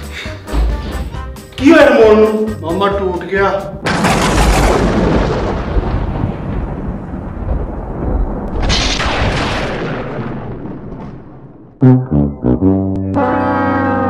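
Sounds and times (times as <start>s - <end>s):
thunder-like boom: 3.8s - 11.8s.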